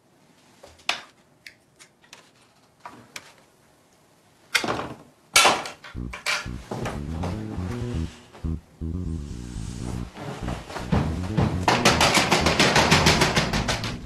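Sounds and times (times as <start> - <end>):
music: 6.0 - 14.0.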